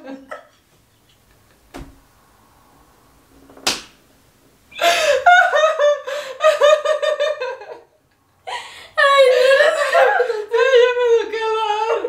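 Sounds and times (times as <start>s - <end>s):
women laughing: 4.8s - 7.9s, 8.5s - 12.0s.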